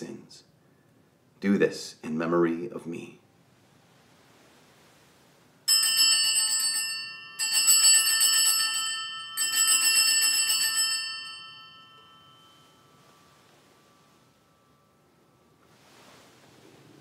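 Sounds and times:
small bells jangling: 5.7s - 14.9s.

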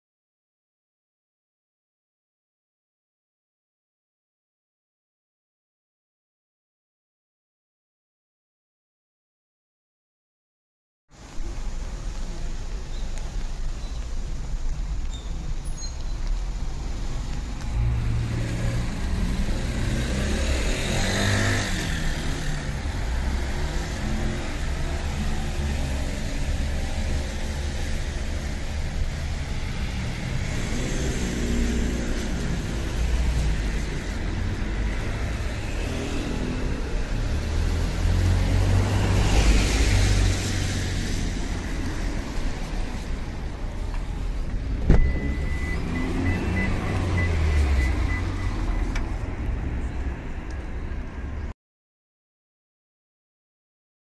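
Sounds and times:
low traffic rumble: 11.1s - 51.5s
cars passing on wet pavement: 11.2s - 51.5s.

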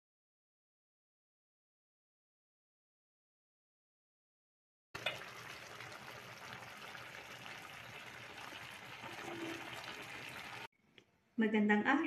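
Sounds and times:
stew simmering in a pan: 5.0s - 10.7s.

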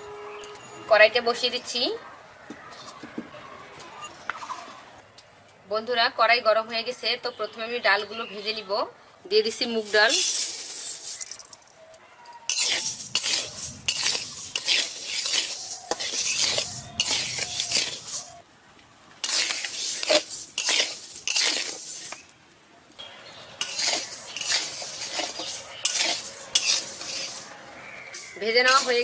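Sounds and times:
spatula scraping metal pan: 12.5s - 18.4s, 19.2s - 22.3s, 23.6s - 29.0s.

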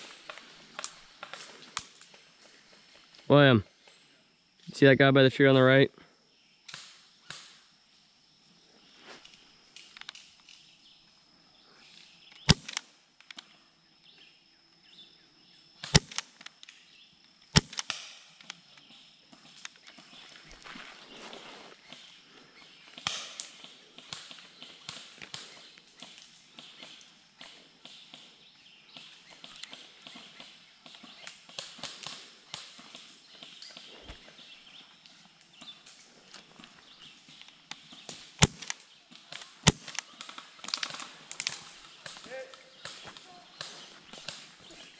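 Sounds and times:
airsoft pistol shots: 15.8s - 16.3s, 17.6s - 18.2s, 38.4s - 38.8s, 39.6s - 40.0s
footsteps crunching dry leaves: 20.4s - 21.8s.

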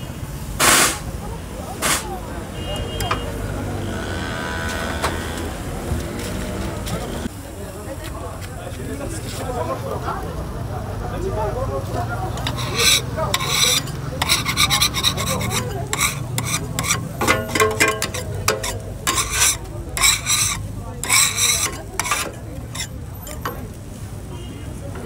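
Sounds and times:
rasping scraping strokes: 12.3s - 23.7s.

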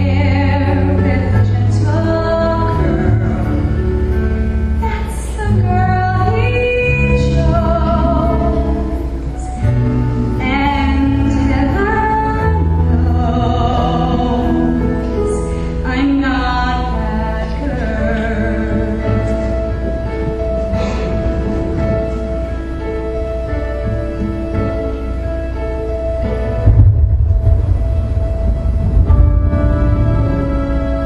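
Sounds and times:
woman singing ballad: 0.0s - 4.2s, 4.8s - 19.8s
instrumental accompaniment: 0.0s - 31.0s.

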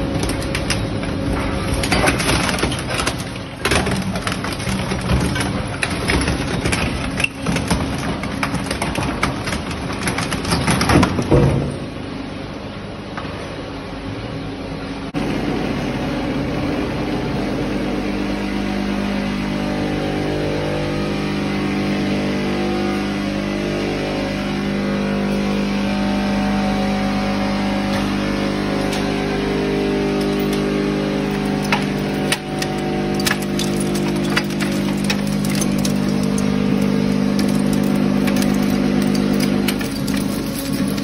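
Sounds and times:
conveyor machinery humming: 0.0s - 41.0s
metal fragments dropping into bag: 31.3s - 41.0s.

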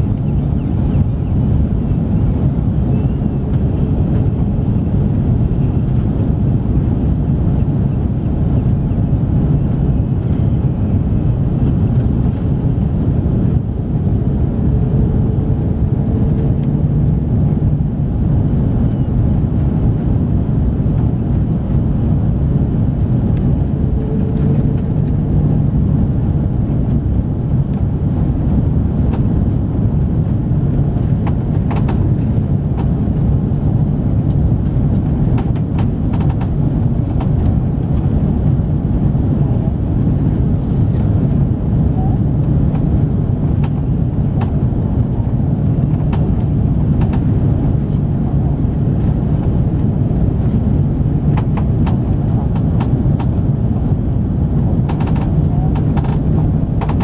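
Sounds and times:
airliner cabin engine rumble: 0.0s - 57.0s.

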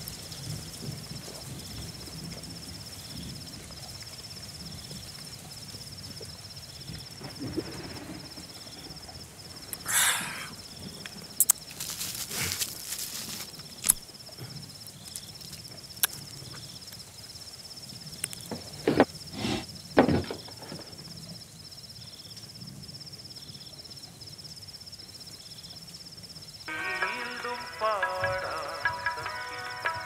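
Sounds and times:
night insects trilling: 0.0s - 30.0s
handling thuds and rustles: 11.6s - 13.9s, 20.0s - 21.0s.

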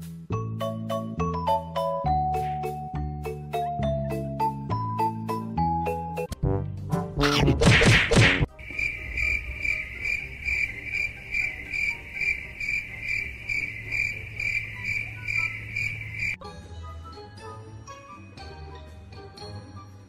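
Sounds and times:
high-pitched chirping: 8.7s - 16.4s.

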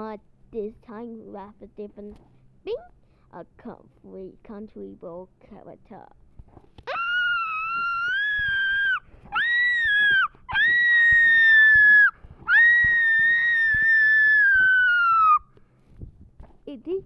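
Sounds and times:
high-pitched screaming: 6.9s - 15.4s.

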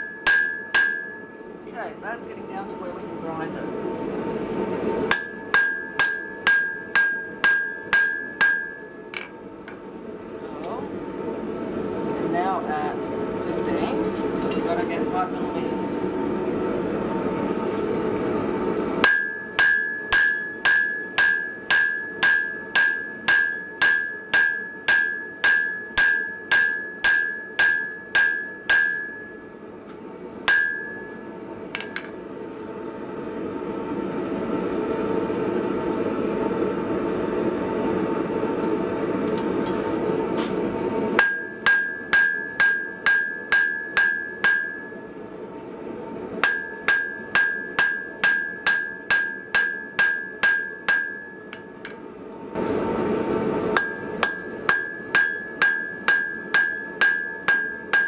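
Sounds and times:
hammer striking steel on anvil: 0.0s - 1.4s, 5.1s - 9.8s, 19.0s - 29.5s, 30.4s - 32.2s, 41.2s - 45.2s, 46.4s - 52.0s, 53.7s - 58.0s.

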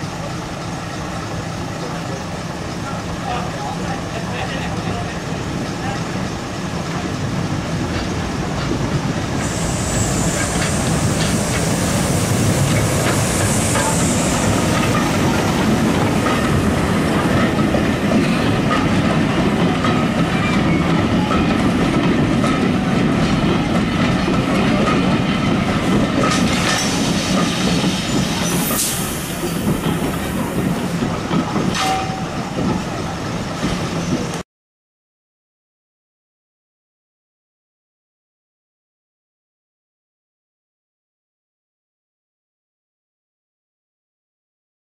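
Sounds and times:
diesel locomotive engine: 0.0s - 34.4s
train wheels clicking on rail joints: 3.8s - 34.4s
high hiss: 9.4s - 15.9s.

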